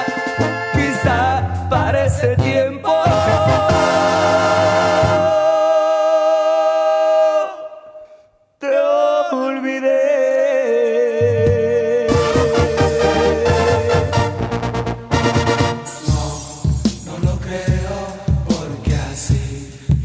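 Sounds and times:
brass band music: 0:00.0 - 0:05.5, 0:12.1 - 0:18.7.

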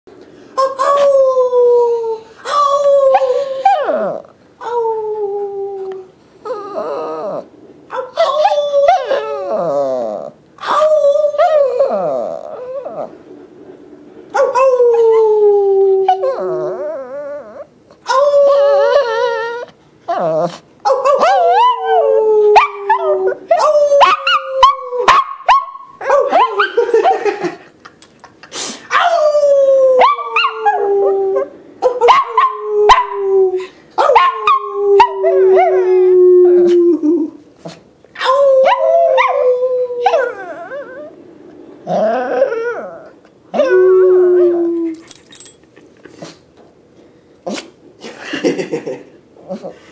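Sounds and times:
dog howling: 0:14.4 - 0:26.8, 0:28.9 - 0:37.4, 0:38.2 - 0:45.4.

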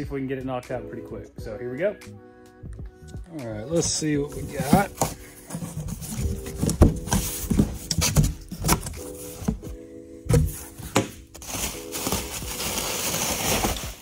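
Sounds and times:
cardboard box knocks and rustles: 0:04.4 - 0:12.2.

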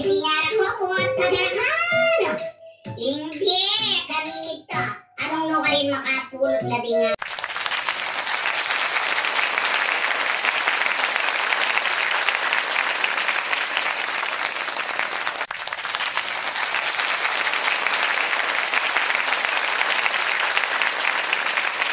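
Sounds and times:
crowd applauding: 0:07.2 - 0:21.9.

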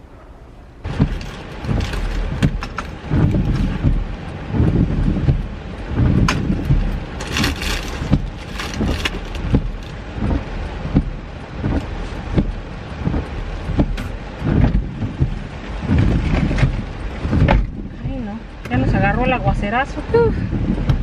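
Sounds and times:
rain on vehicle roof: 0:00.8 - 0:21.0
knocks and rustling: 0:00.9 - 0:05.4, 0:06.0 - 0:17.9.

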